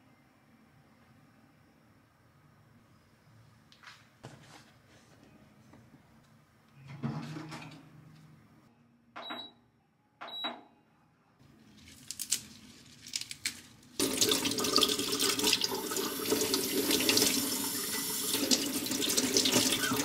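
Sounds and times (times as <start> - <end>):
water running into a sink: 14.0 - 20.0.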